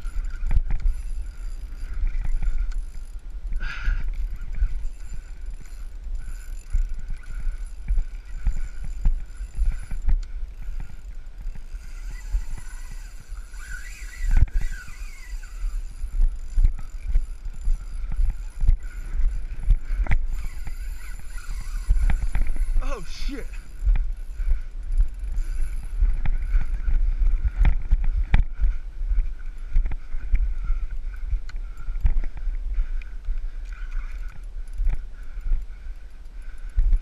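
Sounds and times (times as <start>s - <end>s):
wind on microphone: 0.0s - 37.0s.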